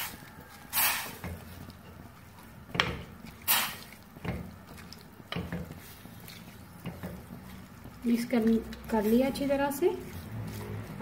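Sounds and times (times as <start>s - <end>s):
spatula stirring wet meat mix: 0.0s - 11.0s.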